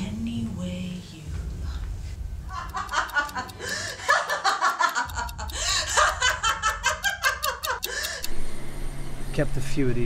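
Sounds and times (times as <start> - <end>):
woman laughing: 2.5 - 8.3.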